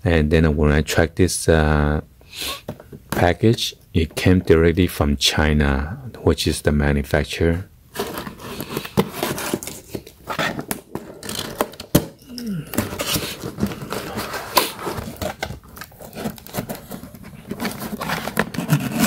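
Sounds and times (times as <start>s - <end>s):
cardboard scraping and rustling: 7.9s - 19.0s
packing tape tearing: 8.0s - 19.0s.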